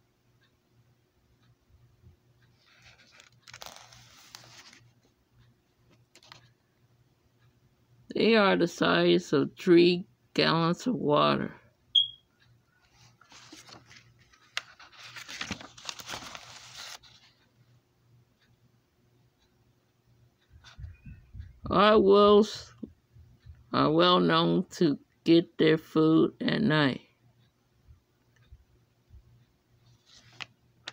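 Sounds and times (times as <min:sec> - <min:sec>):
paper rustling and crinkling: 0:02.6 - 0:05.0, 0:13.0 - 0:17.3.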